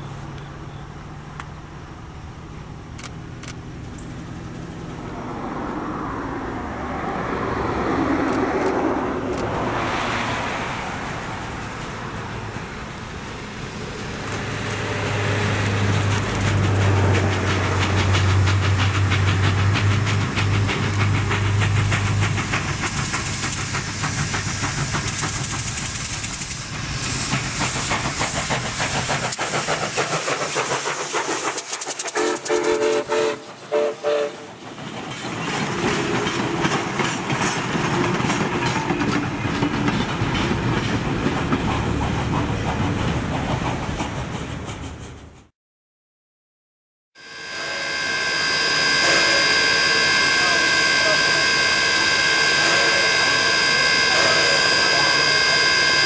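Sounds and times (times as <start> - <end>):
wheels clacking over rail joints: 11.5 - 33.7, 34.4 - 45.5
steam hissing: 13.7 - 37.6, 47.2 - 56.0
steam locomotive whistle: 32.1 - 34.5, 47.2 - 56.0.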